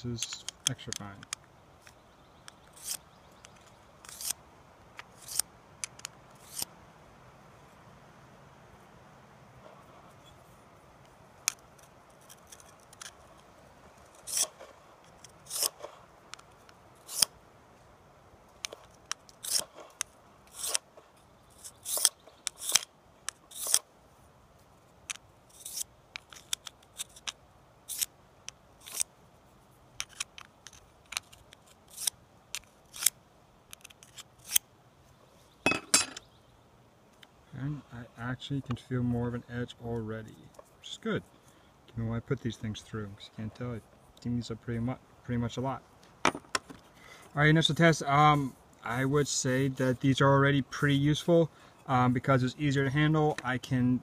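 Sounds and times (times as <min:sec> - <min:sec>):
blade scraping on whetstone: 0:02.8 - 0:03.0, 0:04.0 - 0:04.4, 0:05.1 - 0:05.4, 0:06.4 - 0:06.7, 0:14.1 - 0:14.7, 0:15.4 - 0:15.9, 0:19.4 - 0:19.9, 0:20.5 - 0:20.8, 0:21.5 - 0:22.8, 0:23.5 - 0:23.8, 0:25.5 - 0:25.9.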